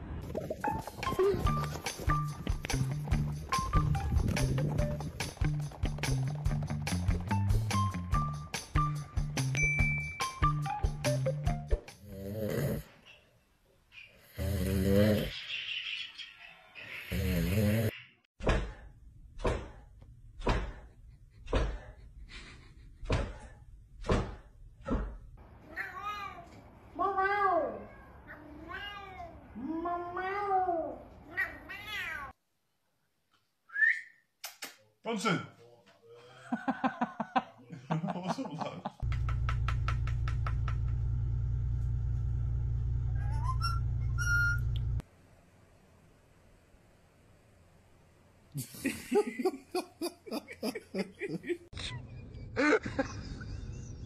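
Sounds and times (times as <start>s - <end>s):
loud low hum: 39.1s - 45.0s
parakeet whistling: 43.2s - 44.6s.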